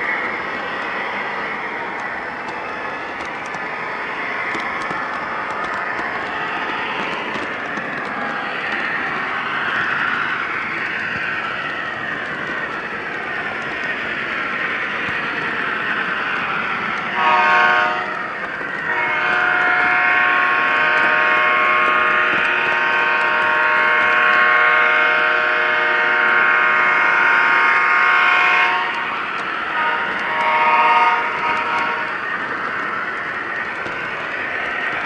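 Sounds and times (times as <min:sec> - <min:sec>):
model train running noise: 0:00.0 - 0:35.0
model train air horn: 0:17.2 - 0:18.2, 0:18.9 - 0:29.1, 0:29.7 - 0:32.1.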